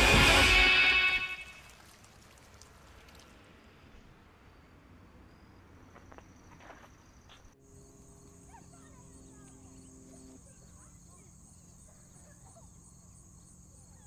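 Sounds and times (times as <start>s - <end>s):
insects trilling: 4.4s - 14.0s.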